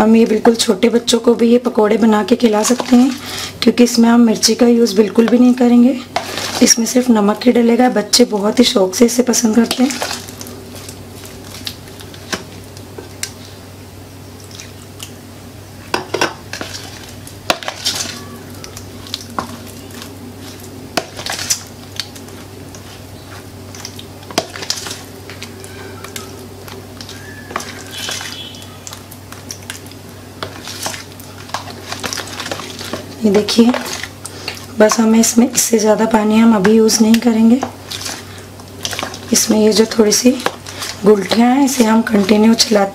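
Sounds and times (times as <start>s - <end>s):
fork beating batter in bowl: 36.4s - 42.9s.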